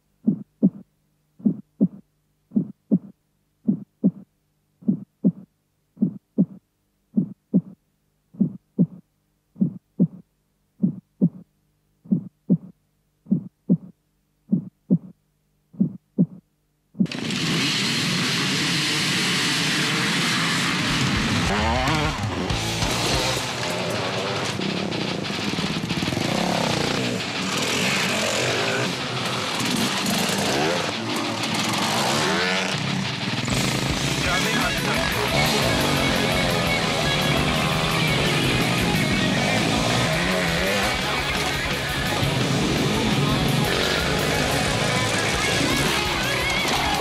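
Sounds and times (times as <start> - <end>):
heartbeat thumps: 0.2 - 17.1
many motorcycles running: 17.1 - 47.0.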